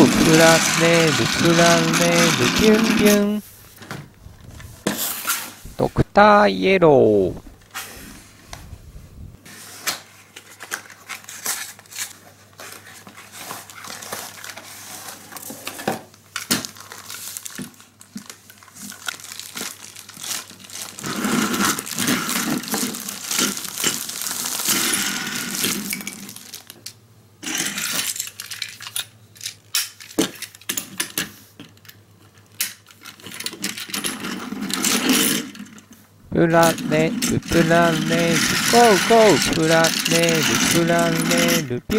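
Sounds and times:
plastic crinkling and rustling: 0:10.0 - 0:26.9.

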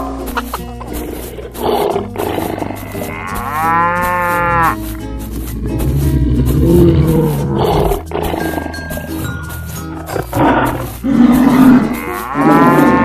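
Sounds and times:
background music with steady beat: 0:00.0 - 0:13.0
cow mooing: 0:00.9 - 0:04.8, 0:05.6 - 0:08.9, 0:09.9 - 0:13.0.

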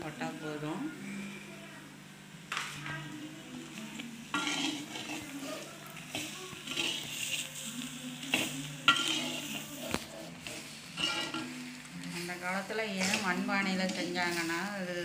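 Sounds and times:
light sizzle: 0:00.0 - 0:15.0
spatula scraping pan: 0:04.3 - 0:14.7.

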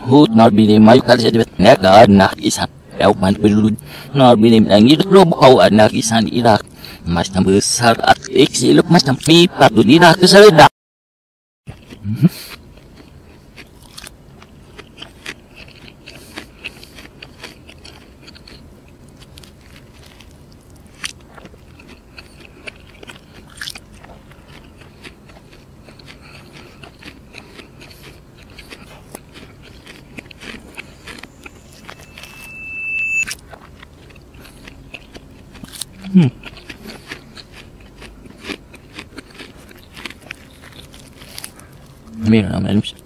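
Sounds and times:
man chewing and crunching: 0:11.7 - 0:43.0
high tone: 0:30.9 - 0:33.4.

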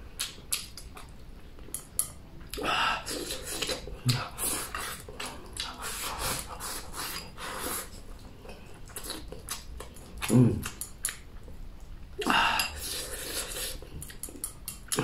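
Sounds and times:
chewing and mouth smacks: 0:00.2 - 0:06.4, 0:08.0 - 0:12.1, 0:12.9 - 0:15.0.

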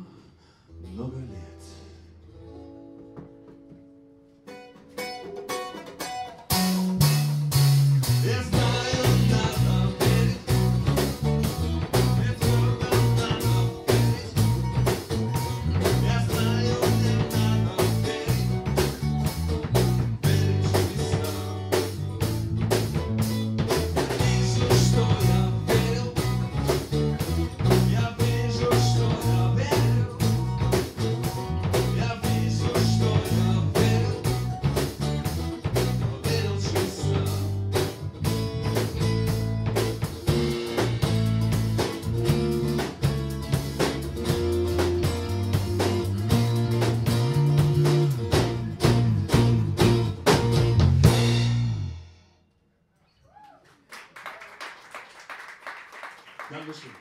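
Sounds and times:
acoustic guitars: 0:00.0 - 0:51.9
live band playing: 0:02.5 - 0:52.2
electric bass: 0:06.1 - 0:52.3
man singing: 0:08.1 - 0:11.0, 0:11.8 - 0:15.0, 0:15.6 - 0:18.9, 0:20.1 - 0:22.0, 0:24.0 - 0:26.7, 0:27.6 - 0:30.5, 0:31.7 - 0:34.6, 0:35.8 - 0:37.8.

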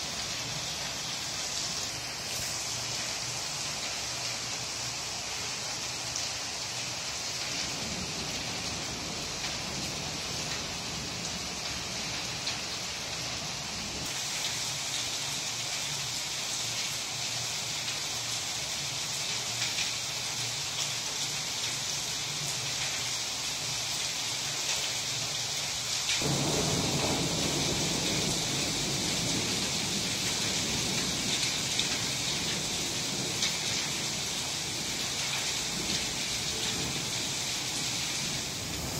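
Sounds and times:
rain and hail on tiles: 0:00.0 - 0:38.9
thunder rumble: 0:26.2 - 0:38.9.

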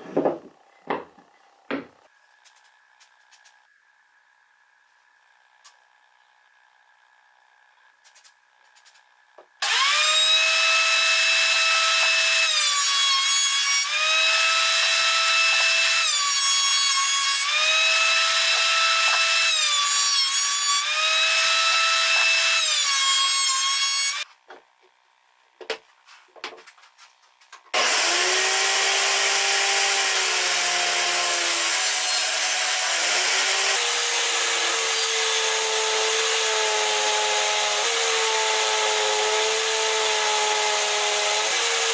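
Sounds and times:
thickness planer running: 0:27.7 - 0:41.9.

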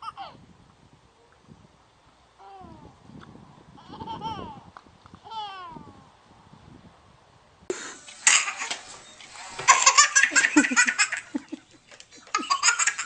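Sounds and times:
baby laughing: 0:03.8 - 0:04.6, 0:08.2 - 0:08.8, 0:09.7 - 0:13.0.

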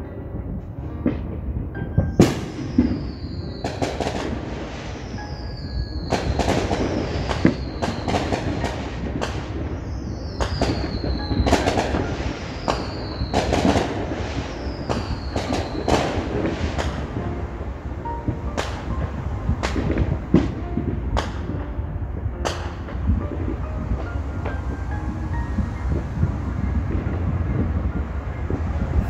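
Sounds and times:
steady low rumble: 0:00.0 - 0:29.0
firework cracks and pops: 0:01.0 - 0:27.7
firework whistles: 0:01.8 - 0:21.7.

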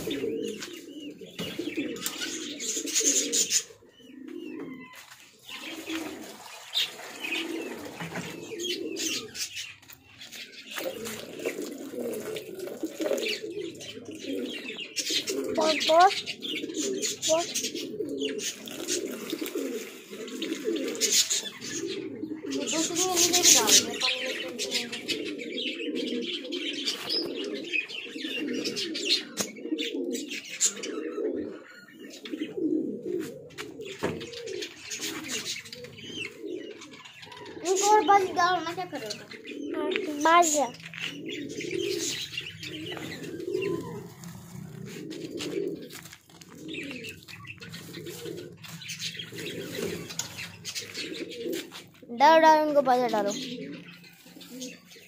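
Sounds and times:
pigeons cooing: 0:00.0 - 0:55.0
bird chirps: 0:34.0 - 0:51.9.

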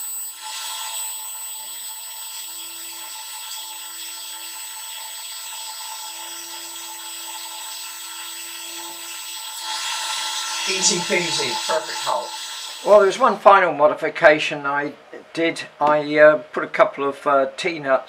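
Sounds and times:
electric spindle drilling steel: 0:00.0 - 0:13.4.

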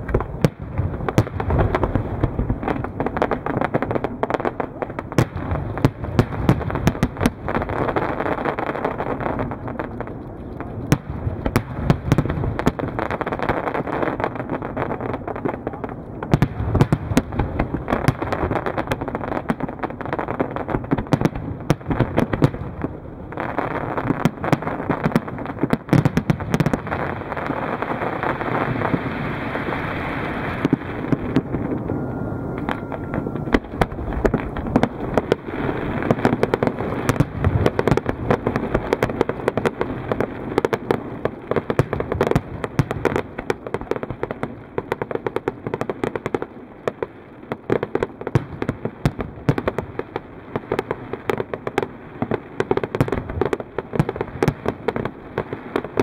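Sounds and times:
crackling pops: 0:00.0 - 0:32.0
fireworks bursting: 0:00.0 - 0:56.0.

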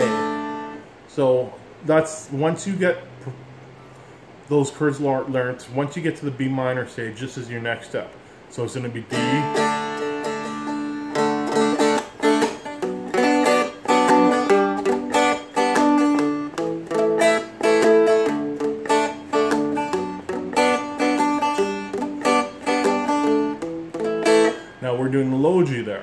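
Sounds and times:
strumstick strummed: 0:00.0 - 0:00.9, 0:09.0 - 0:26.0.

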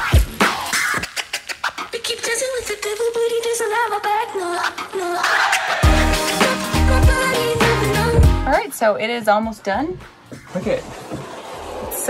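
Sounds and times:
record scratching sounds: 0:00.0 - 0:02.0
hip-hop music with drum beat: 0:00.0 - 0:12.0.

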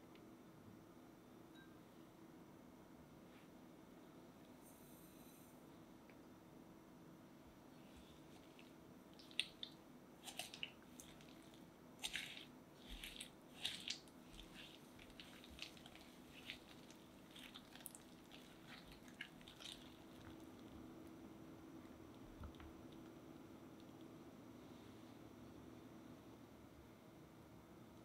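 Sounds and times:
whisk beating cream cheese: 0:10.2 - 0:20.5.

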